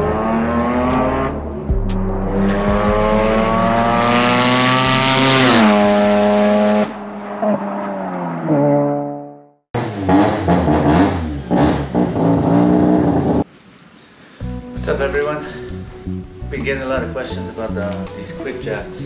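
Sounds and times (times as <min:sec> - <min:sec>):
car engine accelerating: 0:00.0 - 0:13.4.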